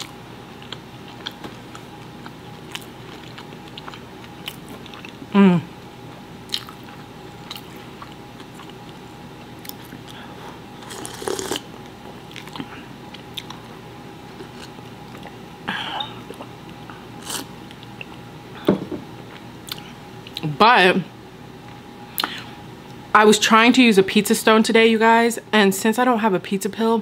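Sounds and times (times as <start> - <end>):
chewing: 0.0 - 5.2, 6.5 - 13.7, 14.4 - 15.4.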